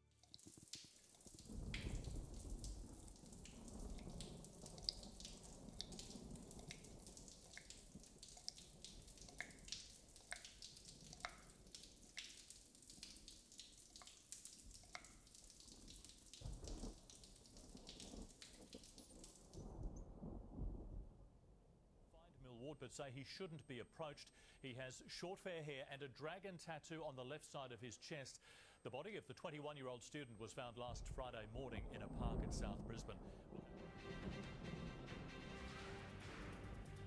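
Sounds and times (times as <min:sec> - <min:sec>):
water dripping: 0:00.0 - 0:20.2, 0:35.6 - 0:37.0.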